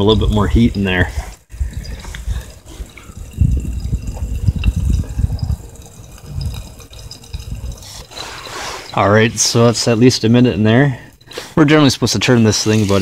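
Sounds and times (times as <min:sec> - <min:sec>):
faint fire crackles: 0:00.0 - 0:13.0
uneven low rumble: 0:01.5 - 0:08.1.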